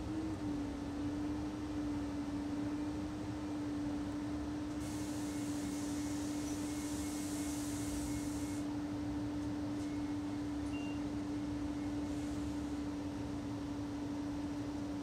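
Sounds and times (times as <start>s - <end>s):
brighter hiss: 4.8s - 8.6s.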